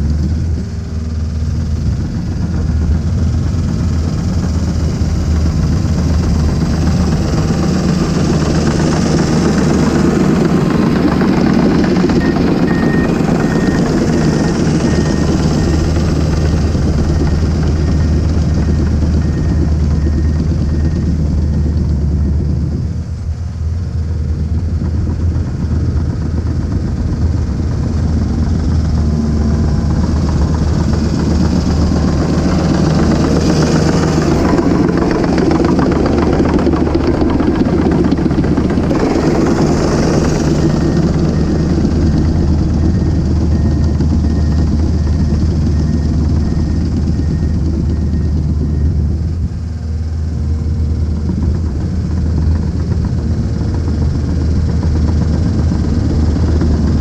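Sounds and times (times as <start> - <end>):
dozer diesel engine running: 0.0 - 57.0
faint reversing alarm beeps: 3.7 - 22.8, 26.2 - 49.4.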